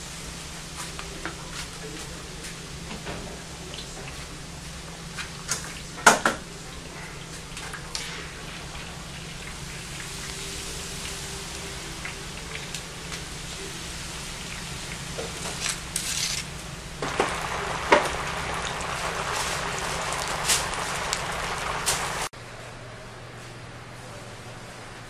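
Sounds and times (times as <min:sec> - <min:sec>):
chicken sizzling in oil: 0:00.0 - 0:22.3.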